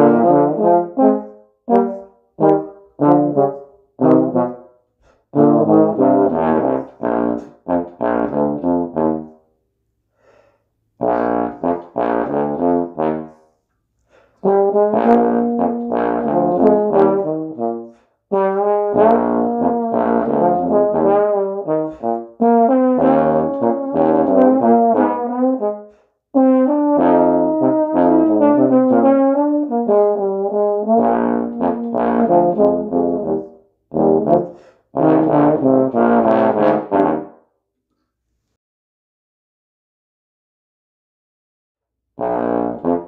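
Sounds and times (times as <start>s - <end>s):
bass trombones duet: 0.0s - 4.7s, 5.3s - 9.4s, 11.0s - 13.4s, 14.4s - 37.4s, 42.2s - 43.0s.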